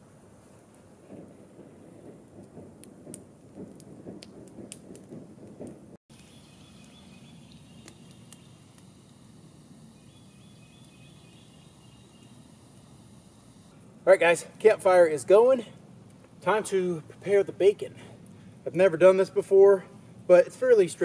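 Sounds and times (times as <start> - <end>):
campfire crackling and popping: 0.4 - 13.7
faint bird chirps: 6.2 - 8.7, 9.9 - 12.6.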